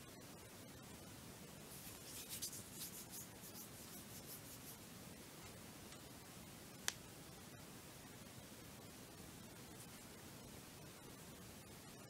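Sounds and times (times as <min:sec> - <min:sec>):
faint scratchy rubbing: 0:01.7 - 0:04.8.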